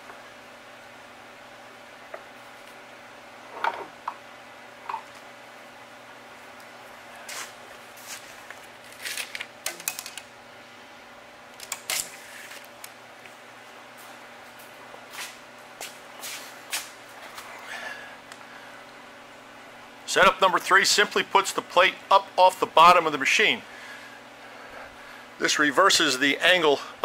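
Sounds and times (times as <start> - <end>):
steady background hum: 0.0 - 27.0
scraping rustles: 7.2 - 9.5.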